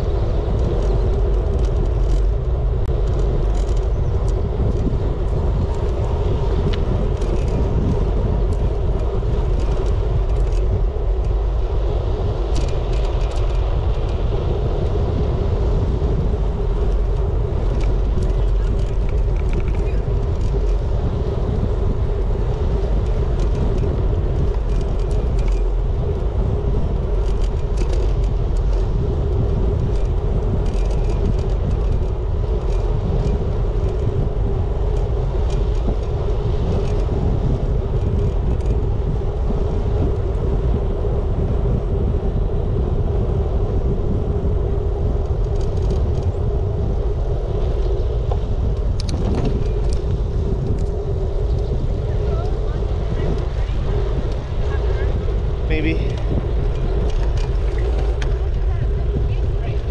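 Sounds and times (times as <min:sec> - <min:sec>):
light rattles: 0:00.0 - 0:41.0
wind rushing over microphone: 0:00.0 - 0:59.9.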